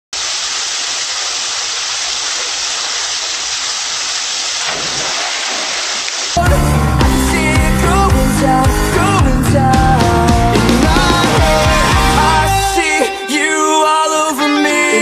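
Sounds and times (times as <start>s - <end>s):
water splashing into a pool: 0.1s - 6.4s
water rushing down a slide: 0.2s - 6.4s.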